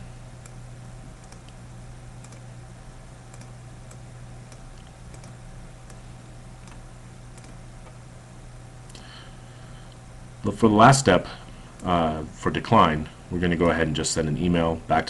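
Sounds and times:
low electrical hum: 0.0 - 15.0
computer mouse clicks: 1.2 - 1.6, 2.2 - 2.5, 3.3 - 6.0, 6.6 - 8.0.

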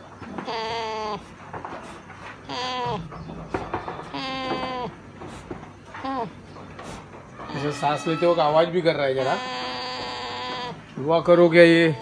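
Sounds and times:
goat bleating: 0.4 - 1.3, 2.4 - 5.1, 6.0 - 6.4, 7.4 - 11.0.

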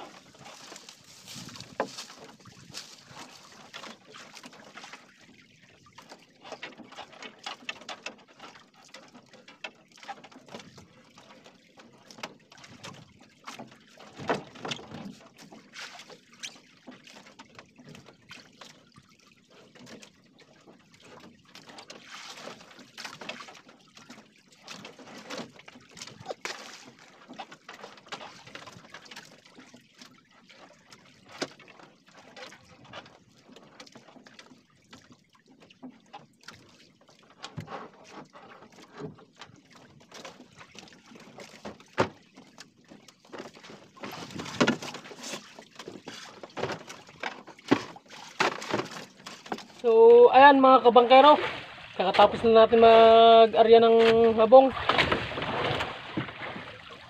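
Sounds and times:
small splashes and knocks: 0.0 - 57.0
water lapping against boat hull: 0.0 - 57.0.

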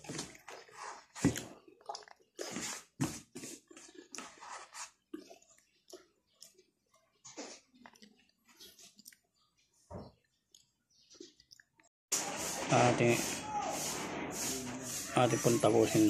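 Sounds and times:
man chewing with wet mouth sounds: 0.0 - 11.9.

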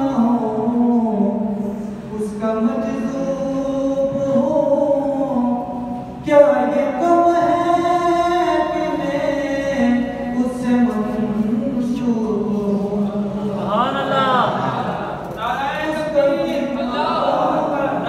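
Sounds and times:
man singing unaccompanied: 0.0 - 14.7.

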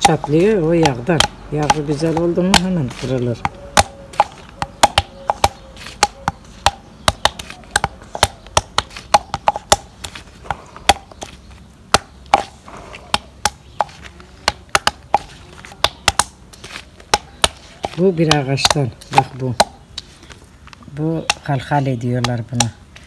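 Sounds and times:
olives knocked on hard surface: 0.0 - 20.1, 20.7 - 22.8.

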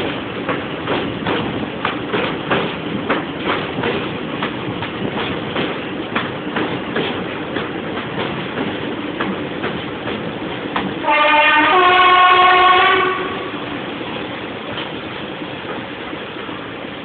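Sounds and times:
train wheels clickety-clack: 0.0 - 17.0
locomotive two-tone horn: 11.0 - 13.6.

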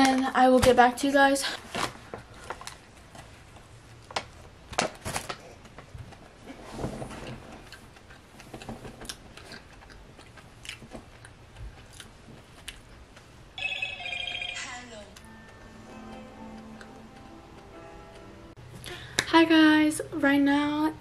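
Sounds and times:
person chewing donut: 7.6 - 13.4.

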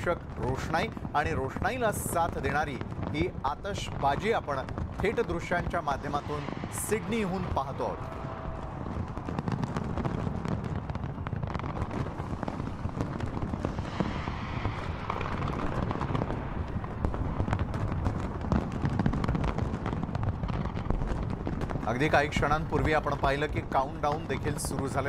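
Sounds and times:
fireworks crackling: 0.0 - 25.0
low rumble of aerial shells: 4.6 - 22.1.

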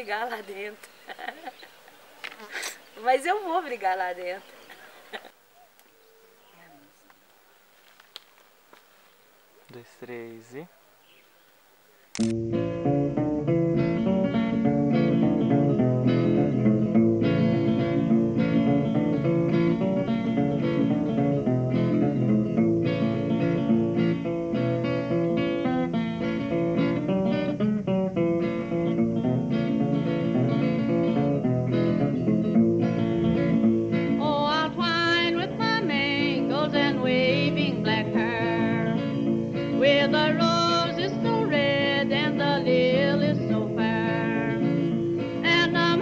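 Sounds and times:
acoustic guitar plucked and strummed: 12.3 - 46.0.

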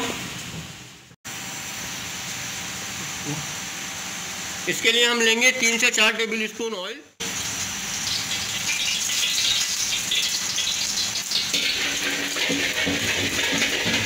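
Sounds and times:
oil sizzling in wok: 7.2 - 14.0
ladle stirring: 11.4 - 14.0.

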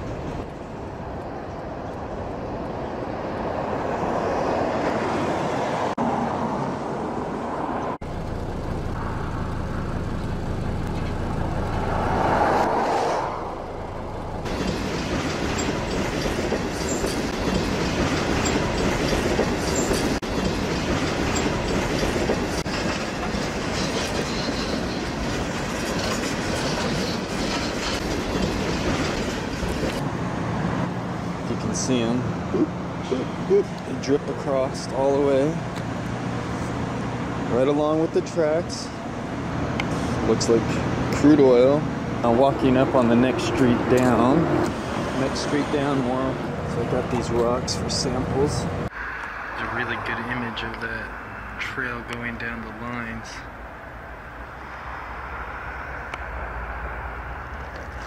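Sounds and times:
train wheels on rails: 14.4 - 31.8.

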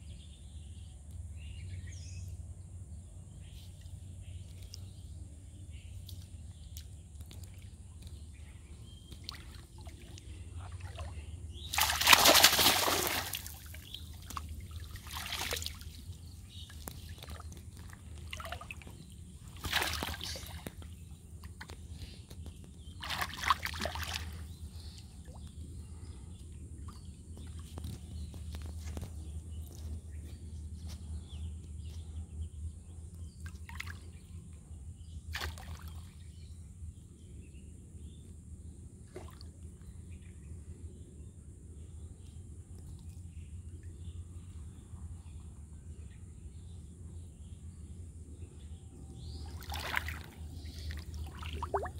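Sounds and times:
steady low hum: 0.0 - 51.9
water splashing and sloshing: 8.9 - 26.0, 35.3 - 36.2, 39.0 - 39.6, 49.4 - 51.9.

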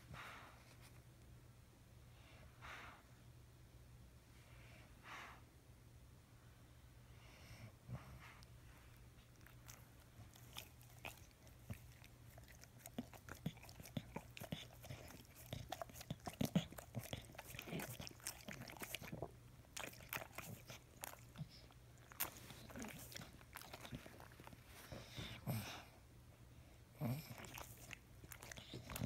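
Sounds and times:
dog licking and chewing: 9.2 - 25.8, 27.0 - 29.0.

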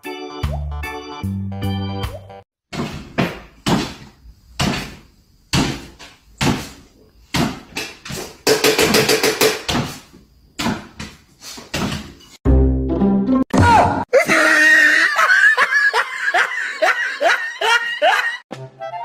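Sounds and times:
dog landing on wooden floor: 10.6 - 12.2.

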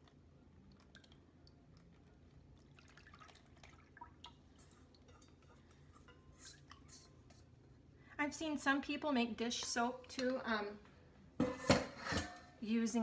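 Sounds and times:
liquid dripping and trickling: 0.0 - 7.4.

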